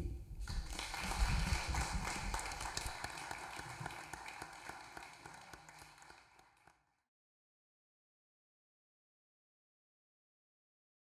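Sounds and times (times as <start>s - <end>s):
audience applauding: 0.5s - 6.8s.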